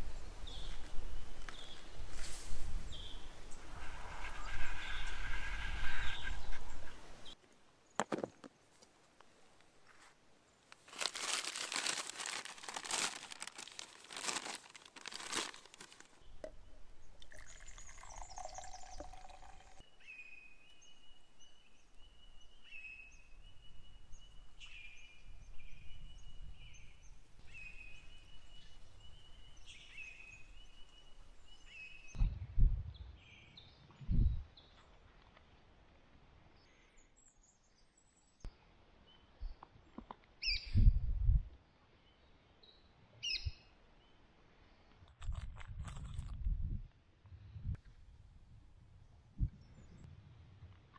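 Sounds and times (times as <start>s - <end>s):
paper napkin rustling: 10.9s - 16.2s.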